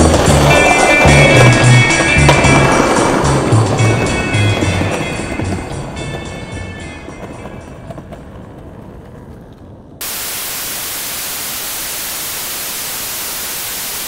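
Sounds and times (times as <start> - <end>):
music: 0.0 - 8.5
loud static hiss: 10.0 - 14.0.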